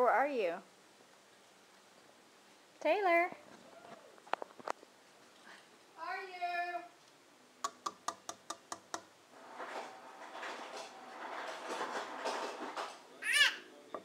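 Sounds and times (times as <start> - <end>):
clicks and taps in wooden cabinet: 7.6 - 9.1
child squealing: 13.2 - 13.7.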